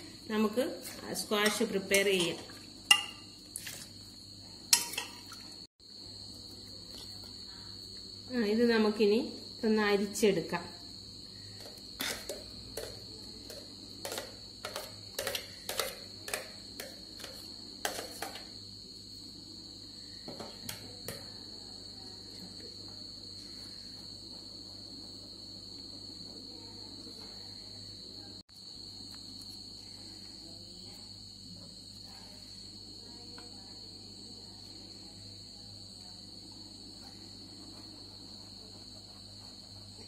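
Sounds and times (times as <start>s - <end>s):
metal spoon knocking steel jar: 2.9s - 3.3s
puree stirring in sieve: 11.6s - 18.4s.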